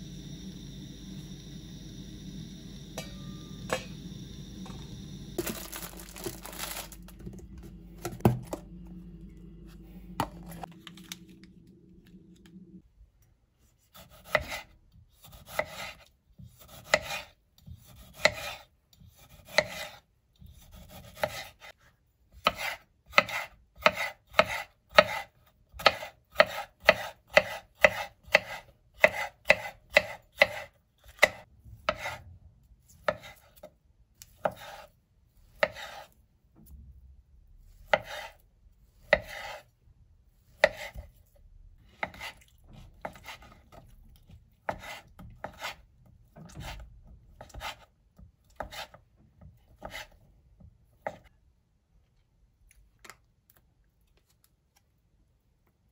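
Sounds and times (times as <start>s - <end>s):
low hum with clicks: 6.8s - 13.4s
knife chopping on cutting board: 14.0s - 21.7s, 22.4s - 32.2s, 33.0s - 34.9s, 35.6s - 36.1s, 37.9s - 38.4s, 39.0s - 39.6s, 40.5s - 41.1s, 41.9s - 42.4s, 43.0s - 43.8s, 44.6s - 45.8s, 46.4s - 47.9s, 48.5s - 49.0s, 49.7s - 50.2s.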